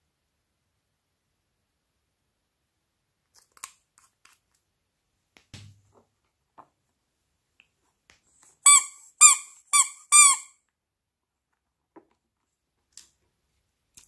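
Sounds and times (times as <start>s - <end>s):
squeeze toy squeaking: 8.6s - 10.6s.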